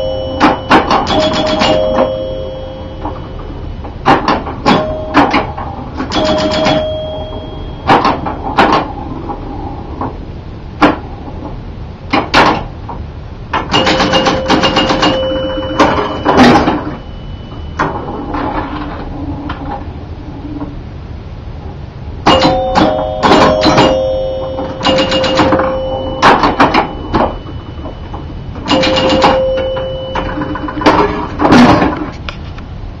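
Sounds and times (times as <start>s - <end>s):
pinball scoring chimes: 0.0s - 9.7s, 13.6s - 19.8s, 22.2s - 32.1s
pinball machine clicks and knocks: 0.0s - 10.2s, 10.8s - 19.8s, 22.2s - 32.2s.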